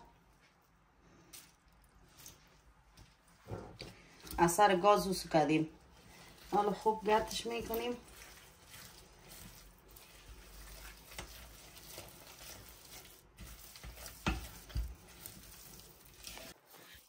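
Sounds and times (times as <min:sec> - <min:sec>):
spatula scraping metal pot: 0:05.8 - 0:17.0.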